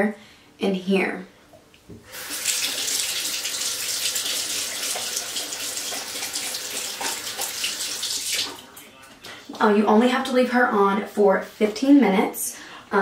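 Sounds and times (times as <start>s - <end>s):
water running into a sink: 2.0s - 8.6s.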